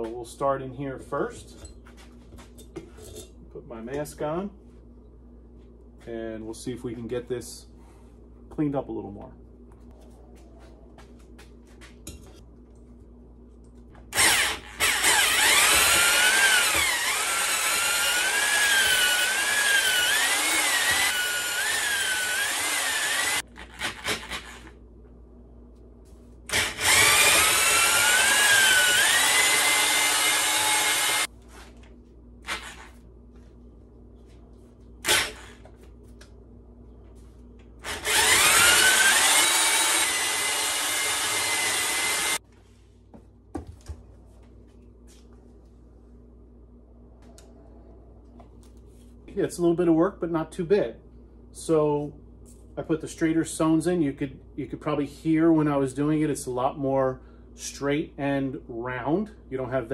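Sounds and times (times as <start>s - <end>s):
electric drill whining: 14.1s - 24.7s, 26.5s - 31.3s, 32.4s - 33.0s, 35.0s - 35.7s, 37.8s - 42.4s.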